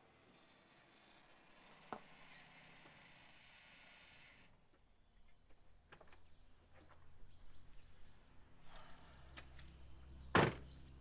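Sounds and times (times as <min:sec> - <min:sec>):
faint outdoor ambience: 0:00.0 - 0:11.0
car door thud: 0:10.4 - 0:10.6.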